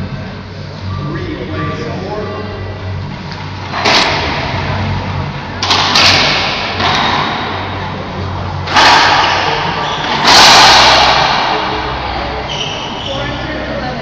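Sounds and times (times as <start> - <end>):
racquetball hits echoing: 5.6 - 8.0, 8.6 - 12.9.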